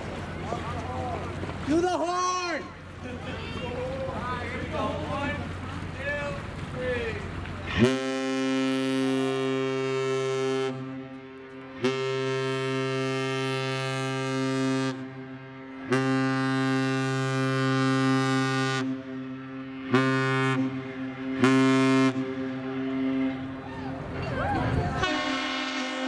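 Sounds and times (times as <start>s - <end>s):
deep ship's horn blasts: 7.0s - 26.0s.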